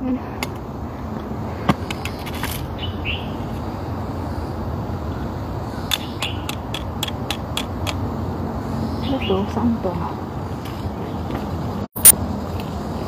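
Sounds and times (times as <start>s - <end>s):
sharp clicks: 5.9s - 8.0s.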